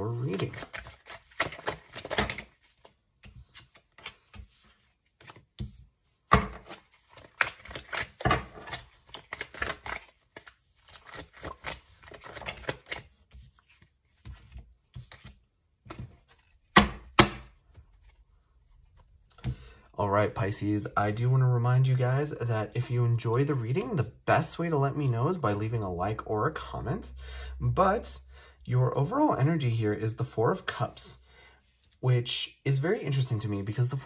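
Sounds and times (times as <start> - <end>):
cards being shuffled: 0.0 - 19.6.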